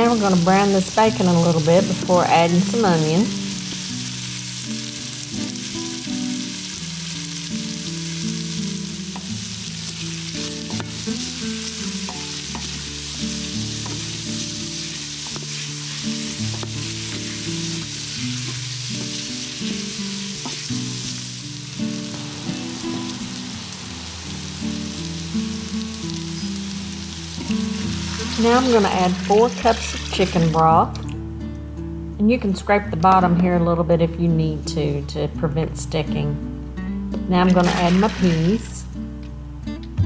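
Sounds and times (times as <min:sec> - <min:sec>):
bacon and onion sizzling in a pot: 0:00.0 - 0:31.0, 0:37.3 - 0:38.9
background music: 0:00.0 - 0:40.0.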